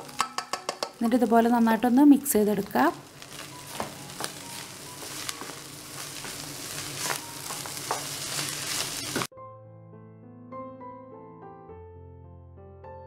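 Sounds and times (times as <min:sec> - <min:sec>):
piano music: 0:00.0 - 0:13.0
spatula stirring rice in a wok: 0:03.0 - 0:09.3.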